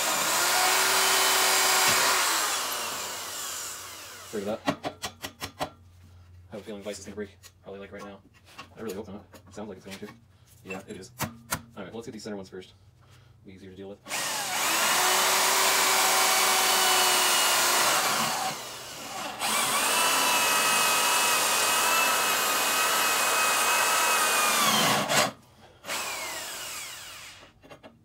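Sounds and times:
drill cutting into steel: 0.0 - 4.5, 14.1 - 27.6.

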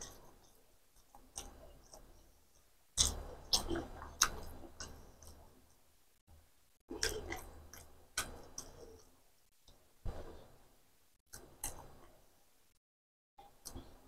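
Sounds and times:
person chewing with wet smacks: 0.0 - 5.8, 6.9 - 9.9, 11.3 - 12.1.

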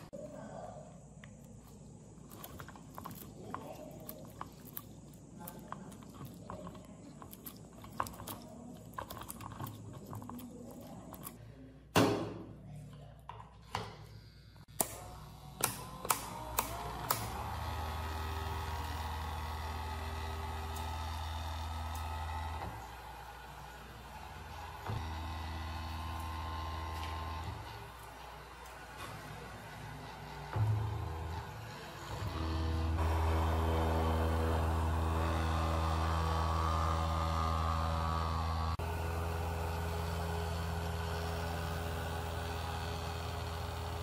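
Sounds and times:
wires rustling: 1.1 - 11.4
electric blower motor humming: 14.6 - 44.0.

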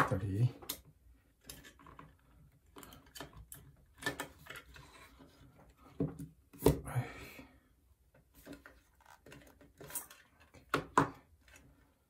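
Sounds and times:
plastic and metal clicks and knocks: 0.0 - 4.8.

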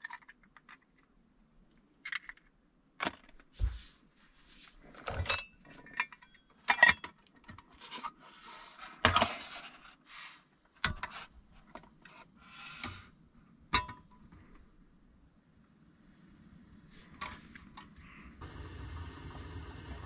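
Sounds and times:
faint steady hiss: 0.0 - 20.0
rustling: 3.1 - 5.9
metal cookware clinking and rattling: 5.1 - 7.7, 13.8 - 14.1.

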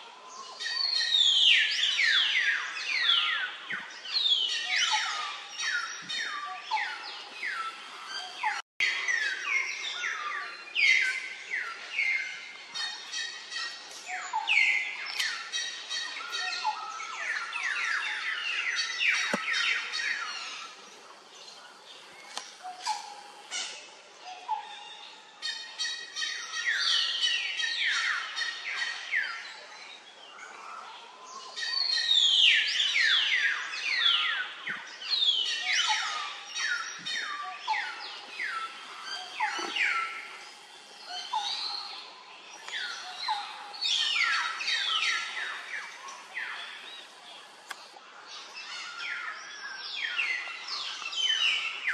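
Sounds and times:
birds chirping: 0.3 - 51.9.

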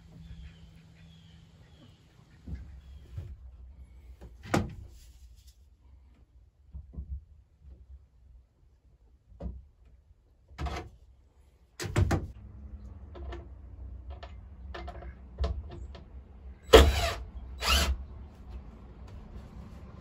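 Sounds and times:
cordless drill driving screws: 16.7 - 18.0.

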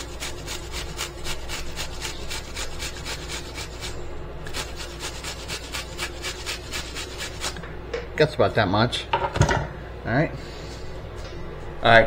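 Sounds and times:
onion grated on metal grater: 0.0 - 7.6.

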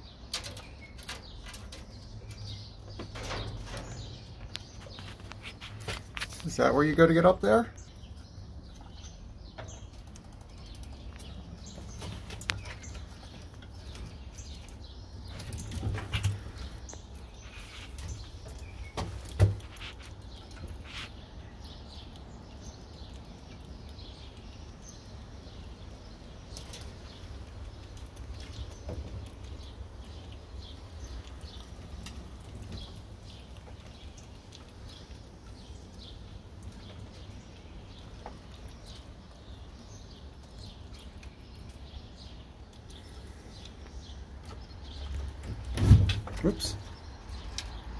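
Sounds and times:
squirrels gnawing nuts: 0.0 - 47.9
small clicks and scrapes: 0.2 - 6.5, 8.7 - 24.1.

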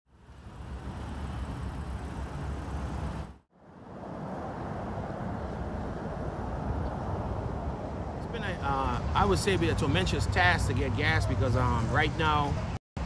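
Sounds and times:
cars idling in traffic: 0.1 - 3.4.

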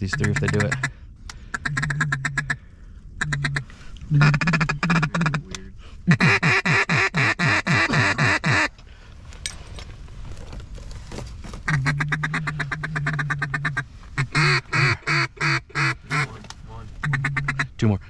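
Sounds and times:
duck call quacks: 0.0 - 0.9, 1.5 - 2.6, 3.2 - 5.5, 6.1 - 8.7, 11.7 - 16.4, 17.0 - 17.7.

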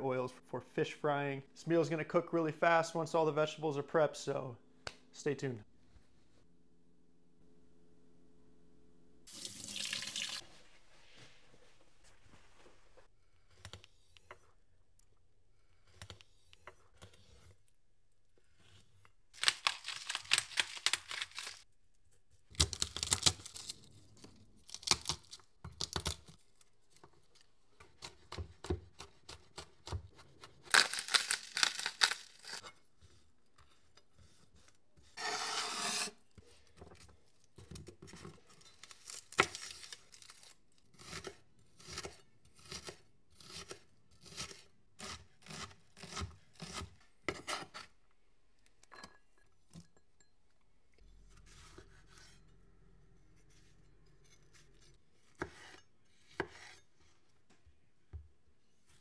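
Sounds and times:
knife scraping fish scales: 34.2 - 36.2
knife chopping on cutting board: 55.4 - 56.8.

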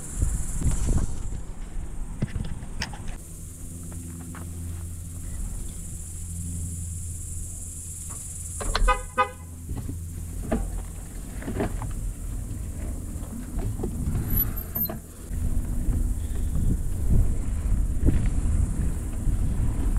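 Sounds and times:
bicycle rolling on asphalt: 0.0 - 8.5, 9.3 - 19.9
vehicle horn tooting: 8.7 - 9.7.

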